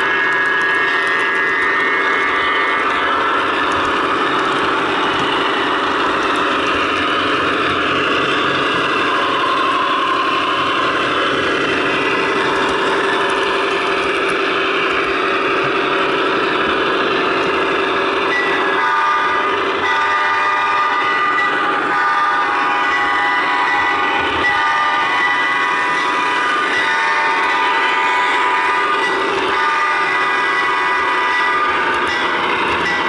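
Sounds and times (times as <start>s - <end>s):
locomotive horn: 0.0s - 6.4s, 18.0s - 33.0s
diesel locomotive running: 0.0s - 33.0s.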